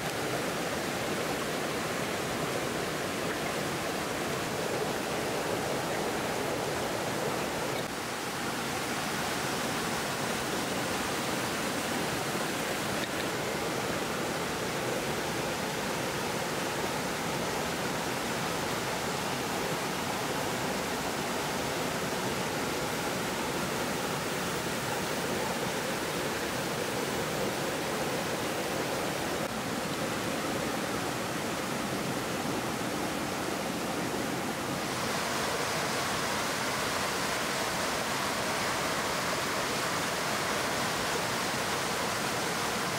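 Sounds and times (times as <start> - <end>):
stream running over rocks: 0.0 - 42.9.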